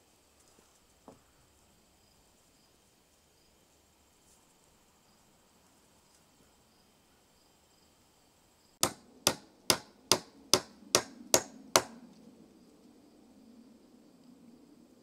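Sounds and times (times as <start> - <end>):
faint insects buzzing: 0.0 - 15.0
hand tool striking wood: 8.8 - 12.0.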